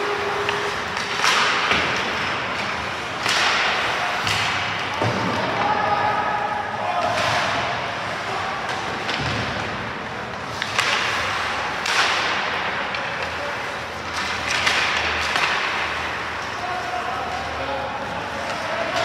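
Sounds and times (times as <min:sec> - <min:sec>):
stick hitting puck: 0:00.4 - 0:05.6, 0:10.4 - 0:13.3, 0:14.1 - 0:15.9.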